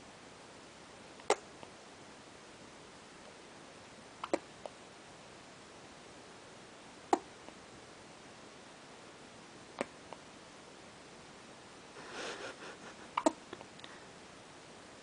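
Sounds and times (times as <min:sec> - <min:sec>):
baby hiccupping: 0:13.1 - 0:13.6.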